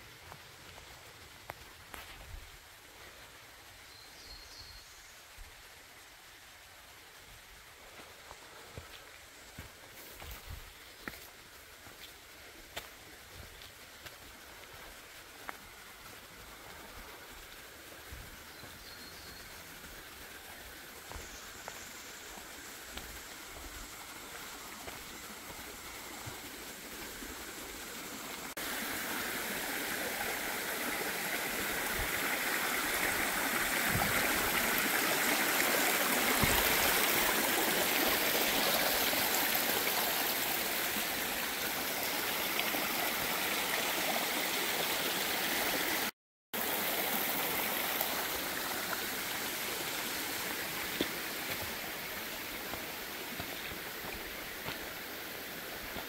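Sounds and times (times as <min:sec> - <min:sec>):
creek water rushing: 0:00.0 - 0:56.0.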